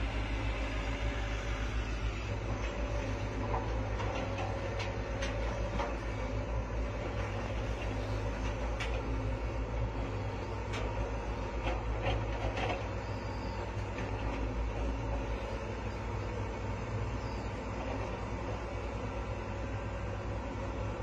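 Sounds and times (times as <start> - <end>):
diesel engine droning: 0.0 - 21.0.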